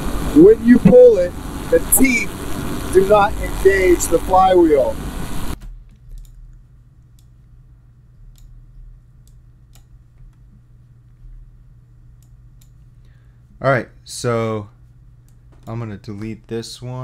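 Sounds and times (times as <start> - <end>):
engine noise: 0.0 - 5.6
faint low hum: 0.0 - 17.0
played-back speech: 0.3 - 5.0
computer mouse clicking: 5.9 - 6.4, 9.2 - 10.4.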